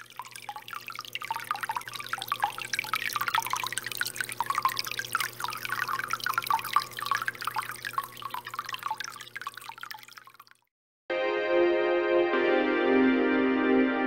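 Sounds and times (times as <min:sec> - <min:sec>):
aquarium water trickling and bubbling: 0:00.0 - 0:10.7.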